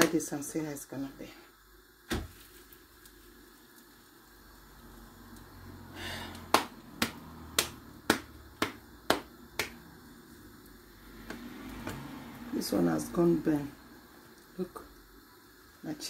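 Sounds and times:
hands patting dough: 6.4s - 9.9s.

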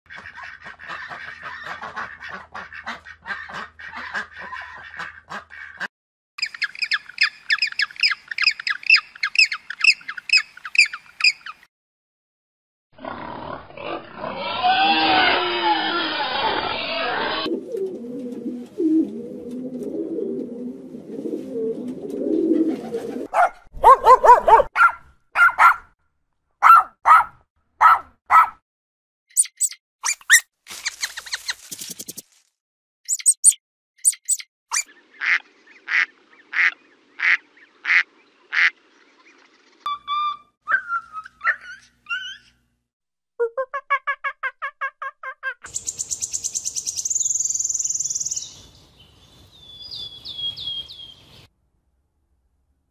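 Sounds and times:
bird calls and chirping: 6.4s - 11.6s, 29.3s - 32.2s, 33.1s - 42.6s, 45.7s - 51.5s
pig grunting and squealing: 13.0s - 17.5s
dog barking: 23.3s - 25.9s, 26.6s - 28.6s.

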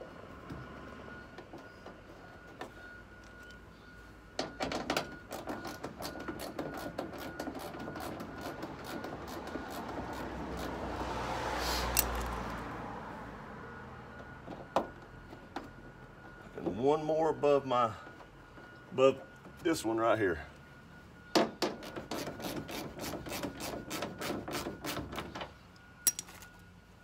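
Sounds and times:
vehicle passing: 9.2s - 14.4s.

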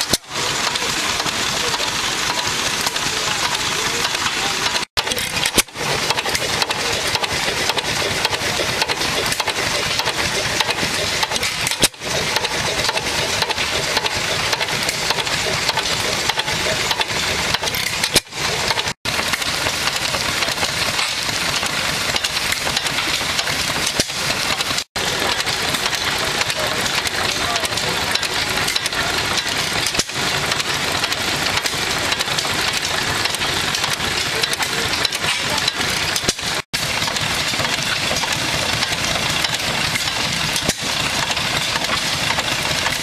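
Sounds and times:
stationary gas engine running: 0.0s - 43.0s.

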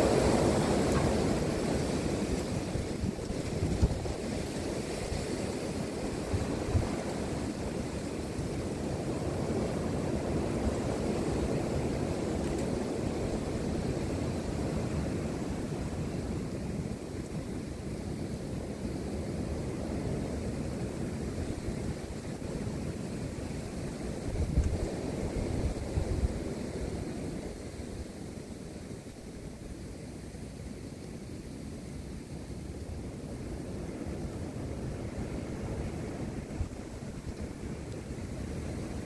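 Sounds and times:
wind storm gusting: 0.0s - 29.6s
wind noise on microphone: 0.0s - 39.0s.

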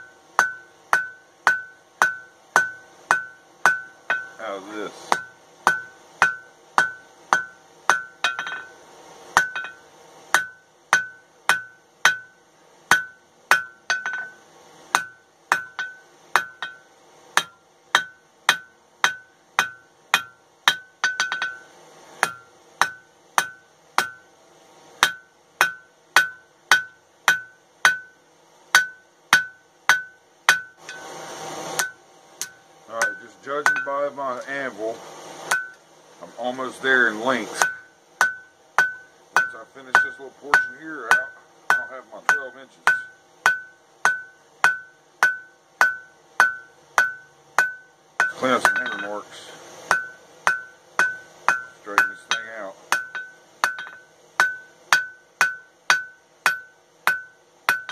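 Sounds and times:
anvil ringing: 0.0s - 4.5s, 5.1s - 8.8s, 9.4s - 14.4s, 15.0s - 24.3s, 31.8s - 34.1s, 37.5s - 49.3s, 49.9s - 57.9s
hammer striking steel on anvil: 0.0s - 24.3s, 25.0s - 31.1s, 31.7s - 34.6s, 35.5s - 35.8s, 36.5s - 57.9s.

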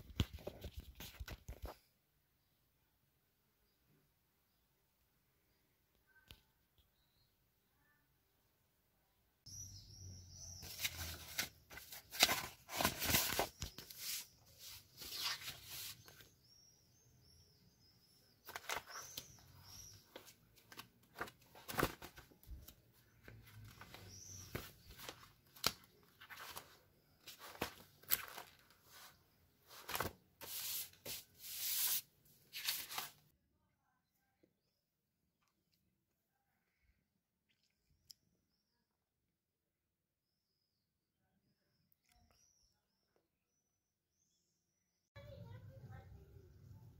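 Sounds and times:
paper pages rustling: 0.0s - 1.8s, 10.6s - 16.3s, 18.4s - 33.2s.

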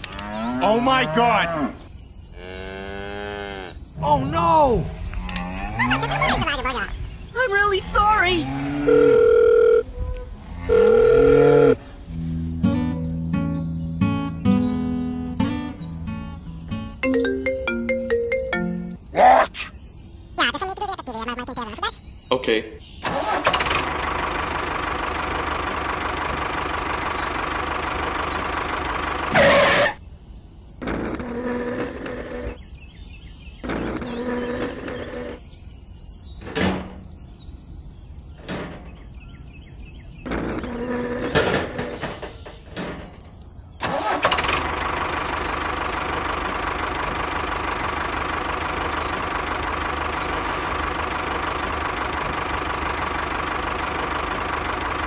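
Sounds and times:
tractor engine idling: 23.0s - 29.8s, 43.8s - 55.0s.

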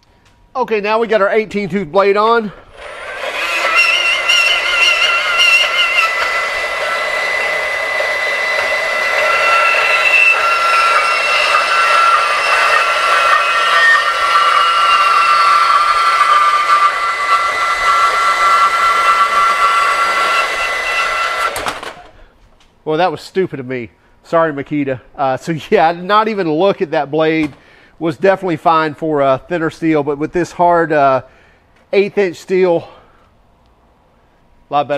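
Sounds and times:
band saw cutting metal: 2.6s - 22.1s.

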